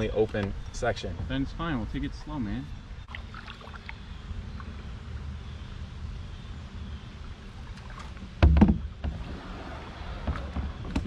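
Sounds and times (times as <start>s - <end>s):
canoe hull bumping over log: 8.3s - 11.0s.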